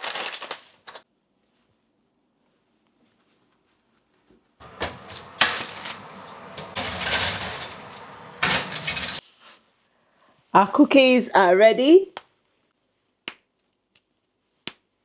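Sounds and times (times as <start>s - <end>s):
kitchen items rustling and clattering: 3.7s - 9.4s.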